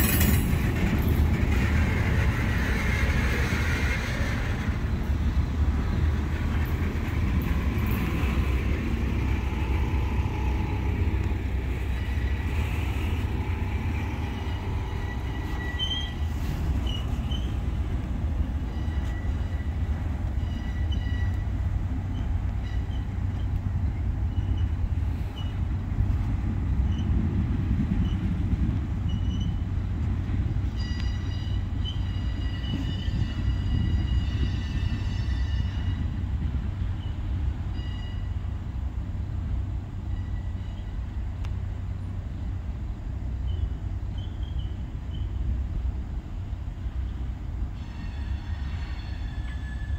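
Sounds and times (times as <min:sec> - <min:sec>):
train cars rumbling past: 0:00.0 - 0:49.9
high-pitched wheel squeal: 0:11.8 - 0:17.6, 0:18.6 - 0:19.8, 0:20.4 - 0:21.4, 0:30.8 - 0:36.2.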